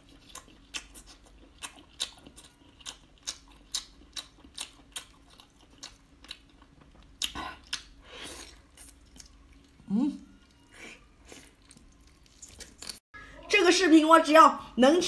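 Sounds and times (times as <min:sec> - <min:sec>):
wet chewing clicks: 0:00.0 - 0:09.7.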